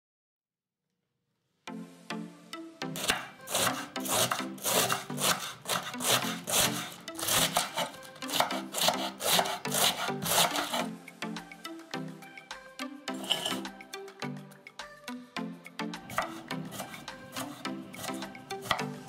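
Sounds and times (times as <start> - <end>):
background music: 1.6 - 19.0
knife slicing cabbage on board: 3.0 - 10.9, 16.1 - 19.0.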